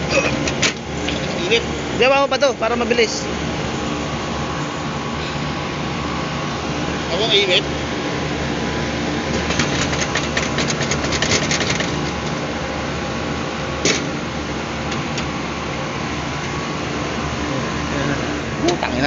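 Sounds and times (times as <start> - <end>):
machinery hum: 0.0 - 19.0
metallic rattling and clicking: 9.4 - 12.3.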